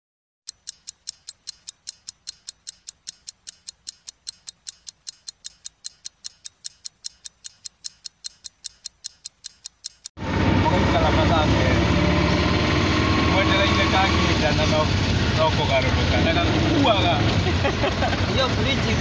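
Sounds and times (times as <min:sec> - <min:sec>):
rapid high ticking: 0:00.5 - 0:10.2.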